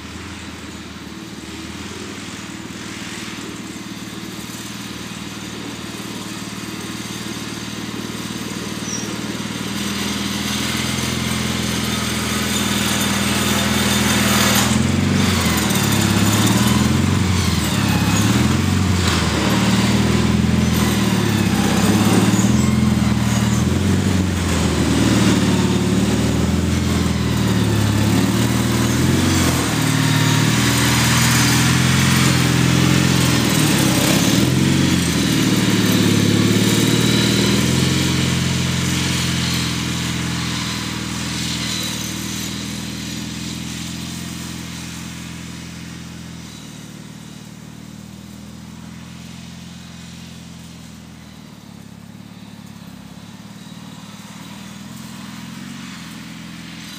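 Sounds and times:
tractor engine running: 0.0s - 56.9s.

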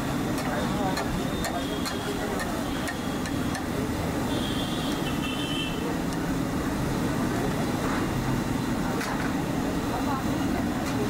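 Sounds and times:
street traffic: 0.0s - 11.0s.

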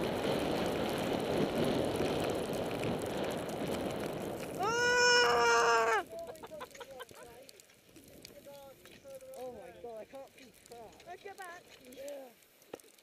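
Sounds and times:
wind on microphone: 0.0s - 6.2s
skis sliding over snow: 0.0s - 13.0s
person shouting: 4.6s - 6.1s.

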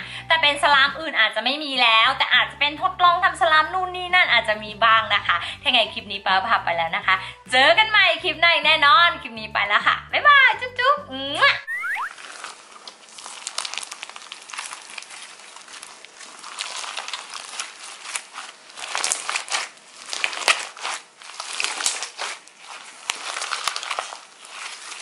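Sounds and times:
slime squeezed with clicks and pops: 11.7s - 12.2s.

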